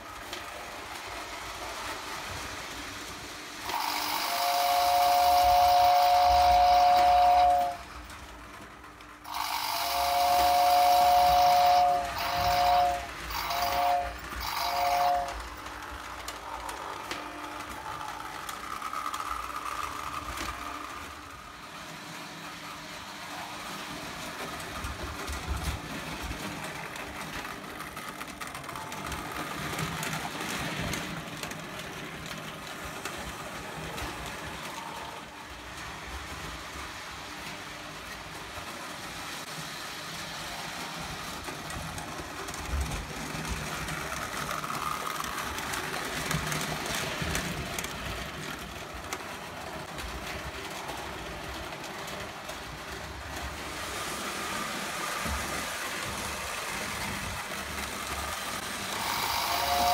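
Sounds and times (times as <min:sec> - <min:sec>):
toy train running on track: 0:00.0 - 0:59.9
toy train whistle: 0:03.6 - 0:08.1, 0:09.2 - 0:15.8, 0:58.8 - 0:59.9.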